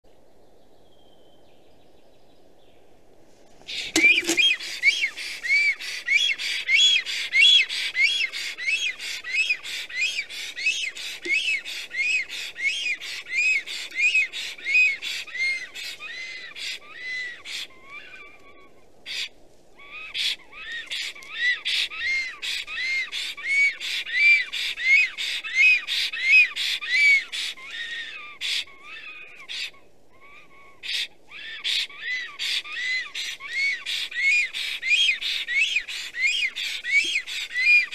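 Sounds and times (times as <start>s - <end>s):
stork wheezy whistled call: 3.7s - 18.4s, 32.2s - 37.9s.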